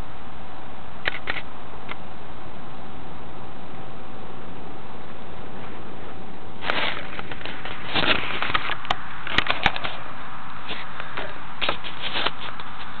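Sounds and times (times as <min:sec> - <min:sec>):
steady hiss: 0:00.0 - 0:13.0
sharp clicks: 0:01.0 - 0:02.0
fingers rubbing camera microphone: 0:10.6 - 0:13.0.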